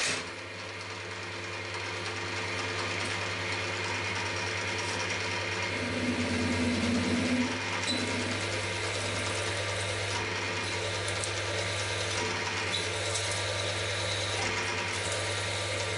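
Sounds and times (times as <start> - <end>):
milling machine motor hum: 0.0 - 15.9
drill cutting metal: 5.7 - 15.9.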